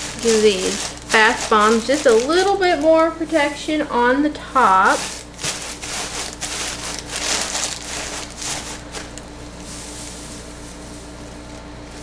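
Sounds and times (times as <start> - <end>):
paper shred rustling: 0.0 - 3.6, 4.4 - 12.0.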